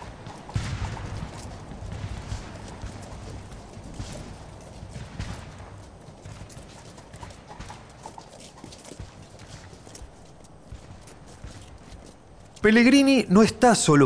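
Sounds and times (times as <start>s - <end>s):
horse hooves clopping: 0.0s - 13.4s.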